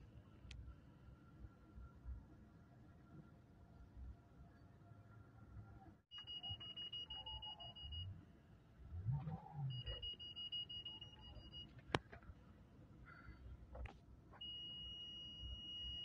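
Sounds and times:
electronic warning beep: 6.1s - 8.2s, 9.3s - 11.7s, 14.4s - 16.0s
faint low rumble: 7.7s - 14.4s.

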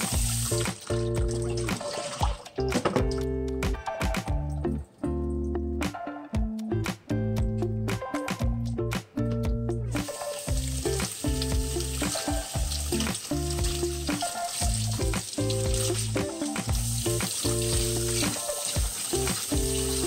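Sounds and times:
tap water running into steel sink: 0.0s - 3.2s, 10.0s - 20.0s
background music: 0.0s - 20.0s.

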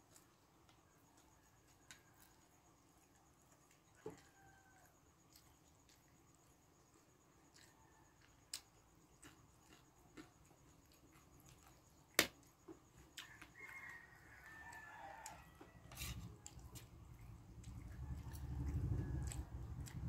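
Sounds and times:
faint rooster crowing: 0.8s - 2.8s, 3.9s - 5.4s, 7.5s - 8.6s, 13.0s - 20.0s.

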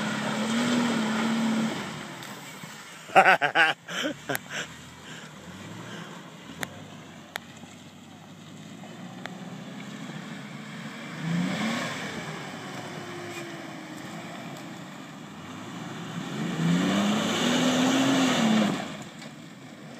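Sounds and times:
car engine revving: 0.0s - 19.3s.

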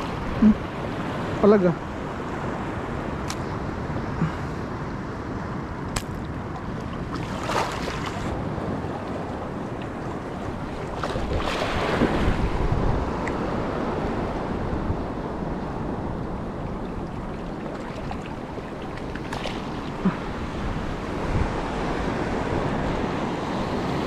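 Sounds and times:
wind noise on microphone: 2.0s - 24.0s
water splashing: 6.0s - 12.6s, 16.3s - 20.5s
water lapping: 6.0s - 13.6s, 14.5s - 21.9s.

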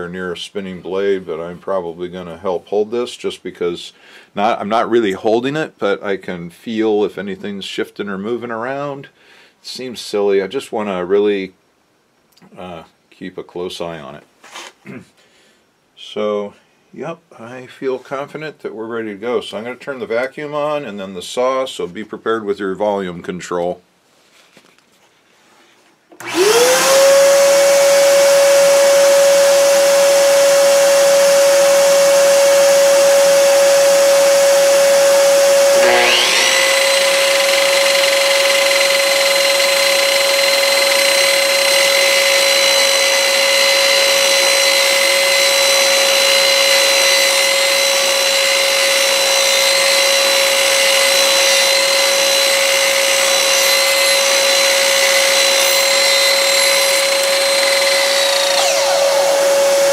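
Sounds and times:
miter saw motor whining: 26.2s - 59.9s
shop vacuum humming: 26.2s - 59.9s.

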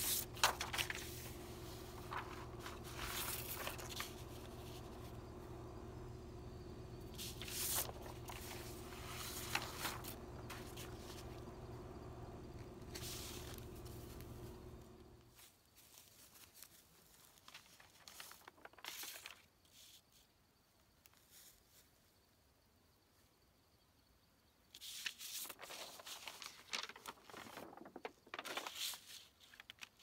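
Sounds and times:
paper rustling: 0.0s - 5.3s, 7.0s - 11.8s, 12.5s - 20.0s, 24.8s - 30.0s
steady low hum: 0.0s - 15.3s.

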